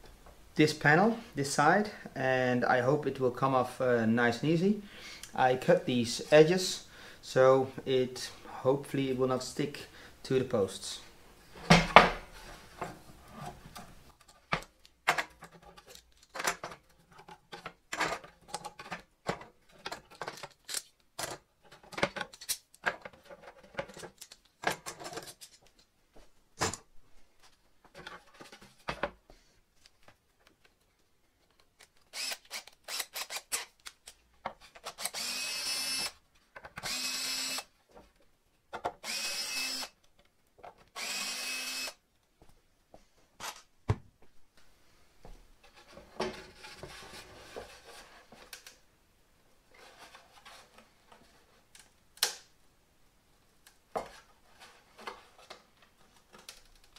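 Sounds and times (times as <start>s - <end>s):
cordless drill whirring: 32.2s - 33.7s, 35.0s - 36.2s, 36.8s - 37.7s, 39.0s - 39.9s, 41.0s - 42.0s.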